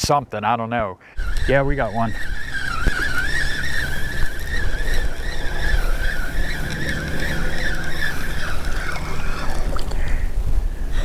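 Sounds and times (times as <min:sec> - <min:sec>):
fishing reel whining: 0:01.2 - 0:11.0
wind rumble on microphone: 0:01.2 - 0:11.0.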